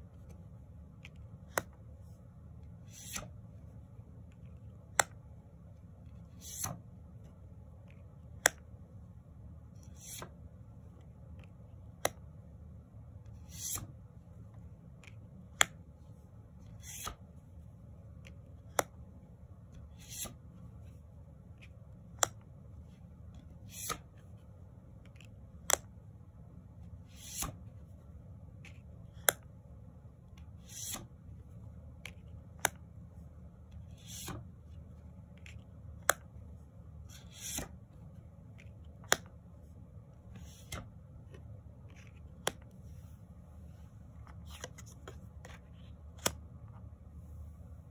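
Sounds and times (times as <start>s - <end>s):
low steady hum: 0.0s - 47.9s
card sliding swish: 2.8s - 3.4s, 6.3s - 6.8s, 9.8s - 10.4s, 13.4s - 14.0s, 16.6s - 17.2s, 19.9s - 20.4s, 23.6s - 24.1s, 27.0s - 27.6s, 30.6s - 31.1s, 33.9s - 34.5s, 37.1s - 37.8s, 40.3s - 40.9s
card tapping: 44.3s - 46.4s.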